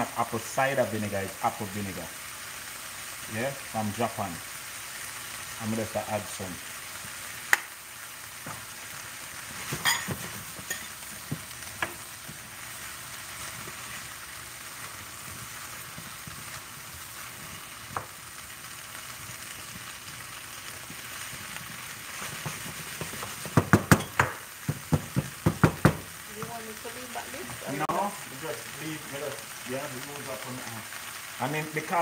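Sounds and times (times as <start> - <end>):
food sizzling in a pan: 0.0 - 32.0
stirring knocks: 20.8 - 26.6.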